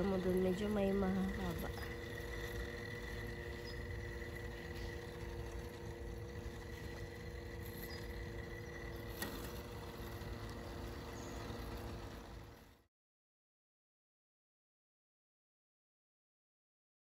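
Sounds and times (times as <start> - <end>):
robot lawn mower whine: 0.0 - 12.9.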